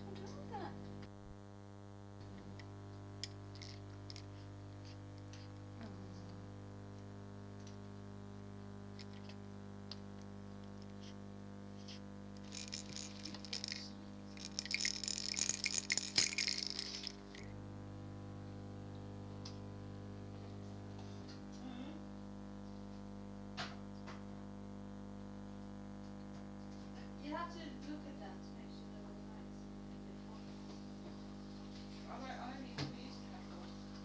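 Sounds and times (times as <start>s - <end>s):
steady electrical hum: 0.0s - 34.0s.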